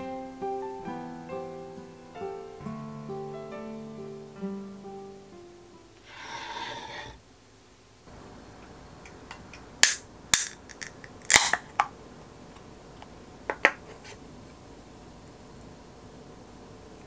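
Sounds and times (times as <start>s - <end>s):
can pull tab popping: 9.3s - 11.9s.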